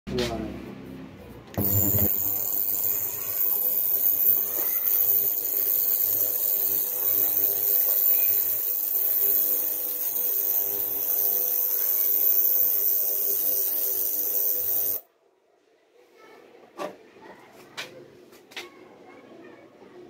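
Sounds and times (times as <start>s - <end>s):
high-pitched whine over hum: 1.6s - 15.0s.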